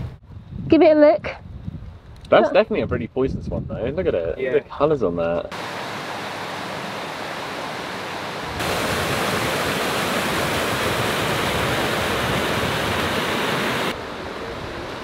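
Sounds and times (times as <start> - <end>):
waterfall rushing over rock: 5.5 - 15.0.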